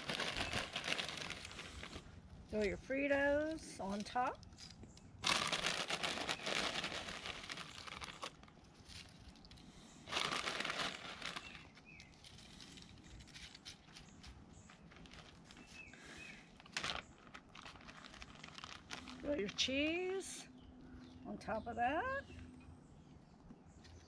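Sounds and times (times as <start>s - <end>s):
chip bag crinkling: 0.0s - 2.1s, 5.2s - 19.6s
plastic bag rustling: 0.0s - 2.6s, 5.2s - 9.4s, 10.1s - 13.9s, 14.7s - 19.6s.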